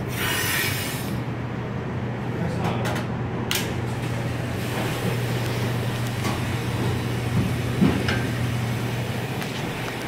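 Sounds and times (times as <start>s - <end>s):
dishwasher motor hum: 3.8s - 10.0s.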